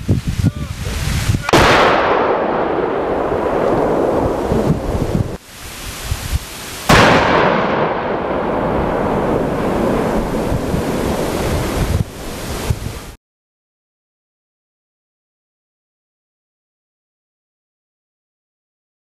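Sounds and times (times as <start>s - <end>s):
demolition charge blast: 1.4s - 5.4s, 6.9s - 12.9s
long explosion rumble: 1.4s - 5.4s, 6.9s - 13.2s.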